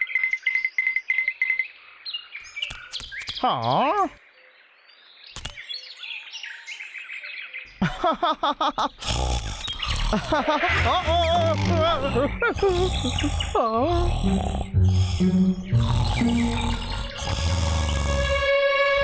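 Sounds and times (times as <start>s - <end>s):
birds chirping: 0.0s - 19.0s
man chuckling: 7.8s - 15.5s
rough loud sound: 9.0s - 19.0s.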